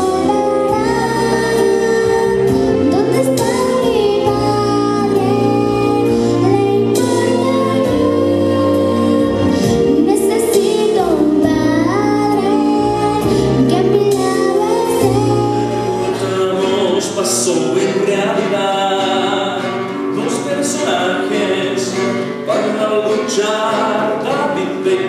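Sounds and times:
girl singing into a microphone: 0.0s - 16.7s
musical accompaniment: 0.0s - 25.0s.

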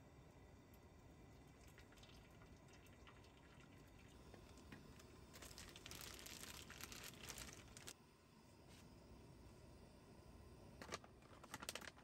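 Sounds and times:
hot water pouring into metal mug: 1.2s - 5.9s.

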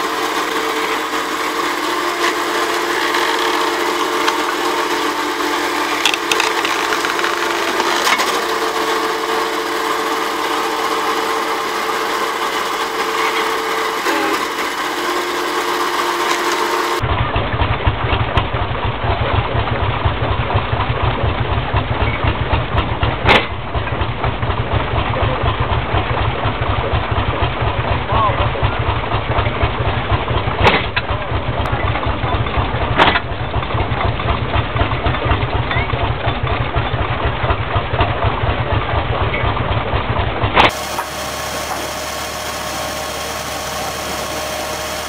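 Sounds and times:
hydraulic log splitter engine whining: 0.0s - 28.0s, 28.9s - 45.0s
flywheel log splitter engine pulsing: 0.0s - 45.0s
sharp wood crack: 5.8s - 8.6s.

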